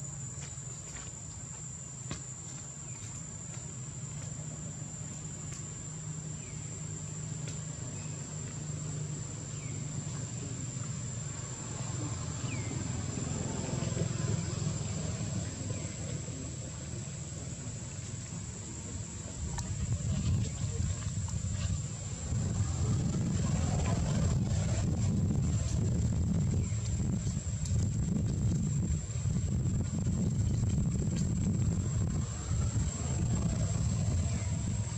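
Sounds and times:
insects droning: 0:00.0 - 0:34.9
low even rumble: 0:06.1 - 0:34.9.

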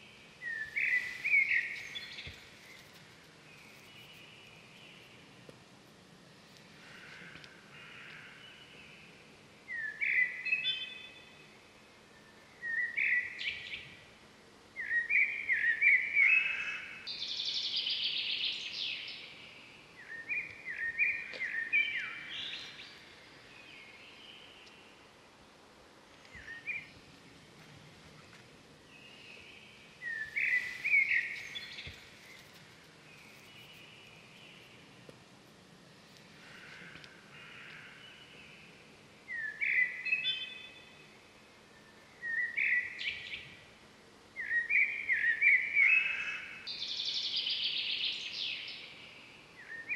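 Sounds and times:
birds chirping: 0:00.0 - 0:05.4, 0:28.2 - 0:35.0
faint open-air hiss: 0:00.0 - 0:49.9.

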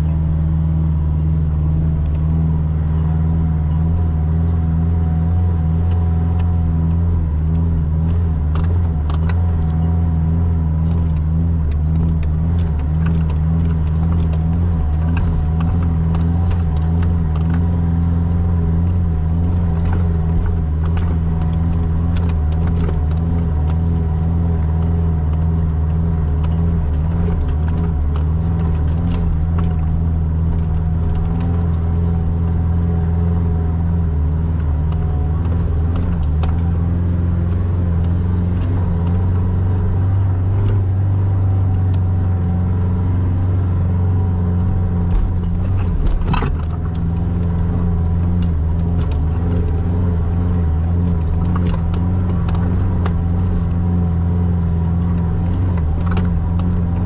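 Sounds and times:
vehicle engine droning: 0:00.0 - 0:57.0.

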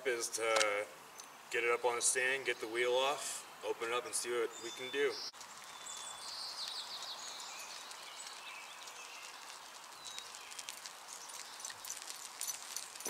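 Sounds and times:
bird chirping: 0:02.4 - 0:13.0
bicycle clicks and jingles: 0:05.4 - 0:13.0
dog running: 0:06.3 - 0:13.0.

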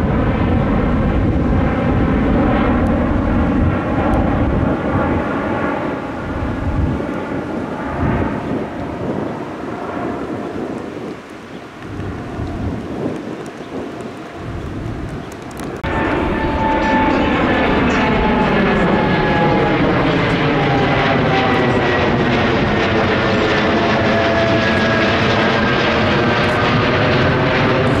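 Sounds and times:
jet engines roaring overhead: 0:00.0 - 0:28.0
whining engine tones: 0:14.4 - 0:28.0.

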